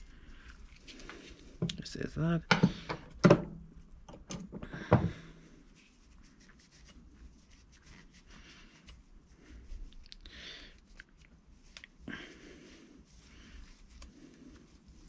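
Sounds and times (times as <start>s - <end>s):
faint scraping and rubbing: 5.3s - 10.0s.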